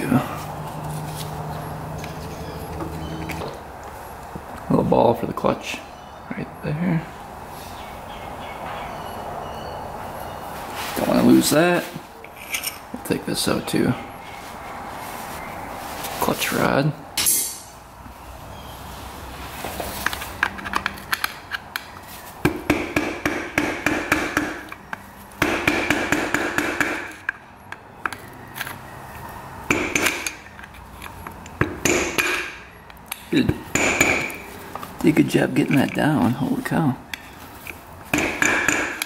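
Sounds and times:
metal tools clicking: 12.2s - 12.9s
impact wrench hammering: 22.4s - 24.7s, 25.4s - 27.4s, 29.7s - 30.4s, 31.6s - 32.6s, 33.6s - 34.4s, 38.1s - 39.0s.

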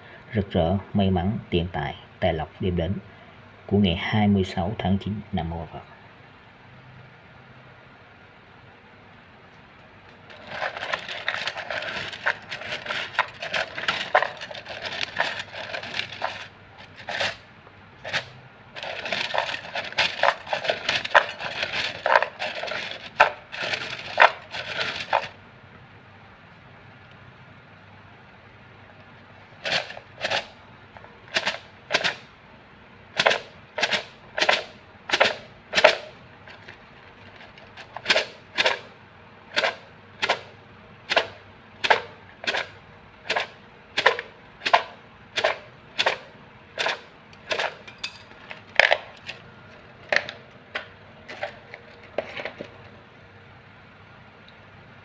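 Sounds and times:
fortune sticks clattering in cup: 18.0s - 25.4s, 46.8s - 49.2s.

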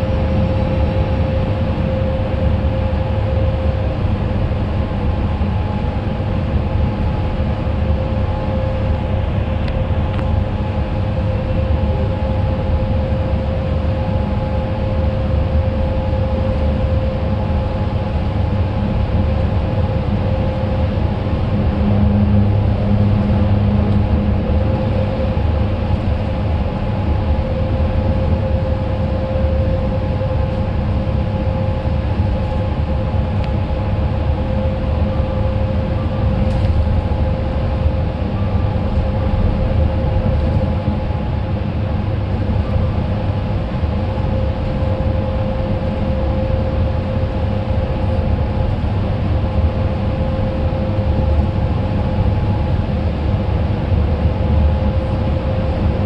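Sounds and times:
faint steady whine: 0.0s - 56.0s
engine and tyres rumbling: 17.8s - 45.0s.

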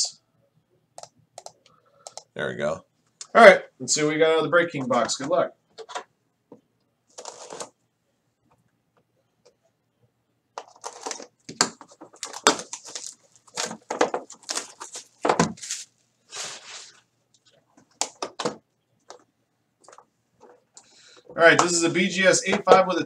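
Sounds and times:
plastic wrap crinkling and tearing: 12.1s - 16.6s.

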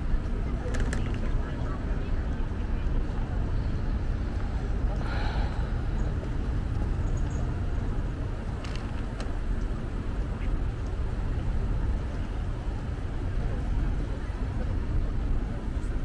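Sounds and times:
city street traffic rumble: 0.0s - 16.0s.

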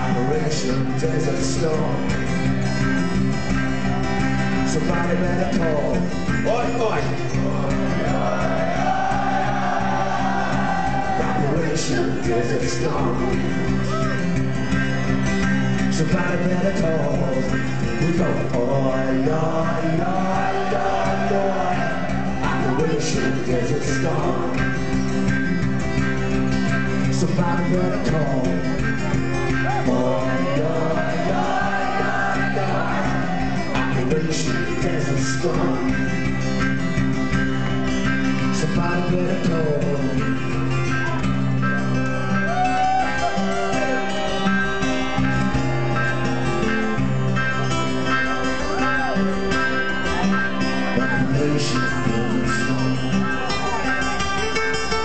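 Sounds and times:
acoustic band accompaniment: 0.0s - 55.0s
singers holding long lines: 0.0s - 55.0s.

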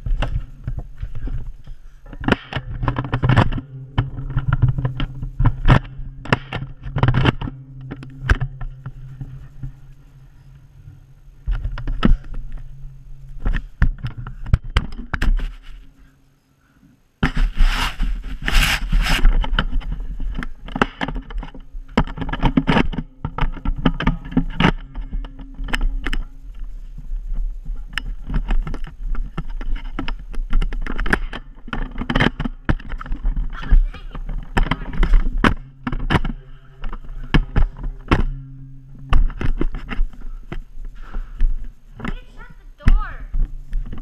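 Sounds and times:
footsteps: 0.0s - 16.1s, 17.2s - 44.0s
low rumble: 0.0s - 16.2s.

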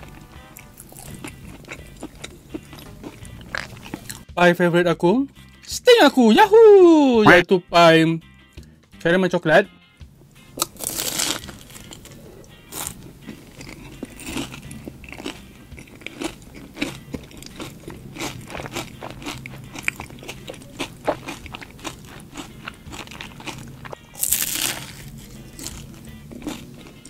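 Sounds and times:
chewing crunchy pie crust: 0.0s - 4.3s, 10.6s - 27.0s.

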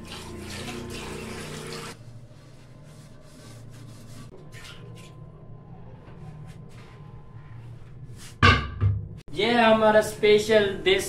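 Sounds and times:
tap water running into a pan: 0.0s - 2.0s.

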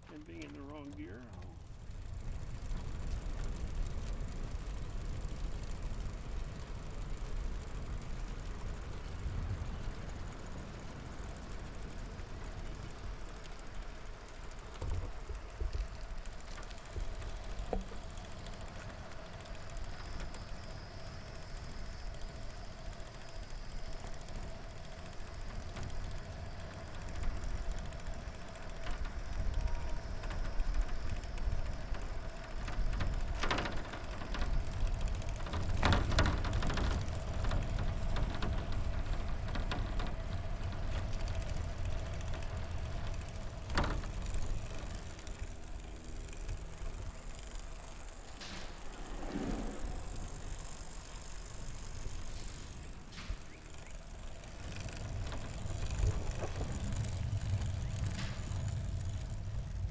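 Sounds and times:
faint steady whine: 0.0s - 59.9s
tyres rumbling on pavement: 24.0s - 59.9s.

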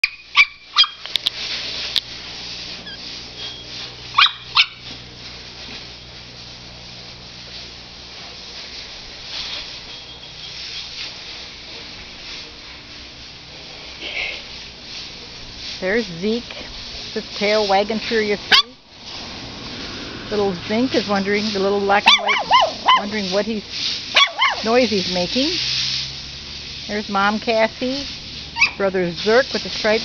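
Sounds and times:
puppies yipping: 0.0s - 1.1s, 2.8s - 4.8s, 18.5s - 18.8s, 22.0s - 23.2s, 24.1s - 24.7s, 28.6s - 28.8s
faint steady hiss: 0.2s - 30.0s.

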